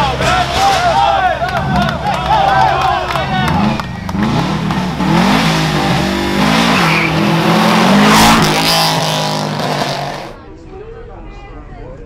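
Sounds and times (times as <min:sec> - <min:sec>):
race car engine revving: 0:00.1 - 0:10.4
tyres squealing: 0:02.6 - 0:10.4.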